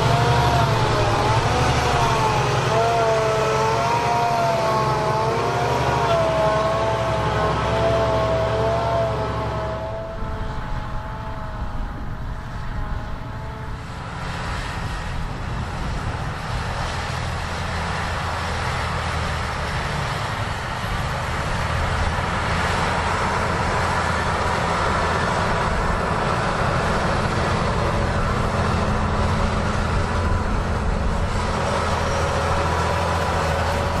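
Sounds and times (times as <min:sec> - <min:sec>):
tractor engine under load: 0:00.0 - 0:34.0.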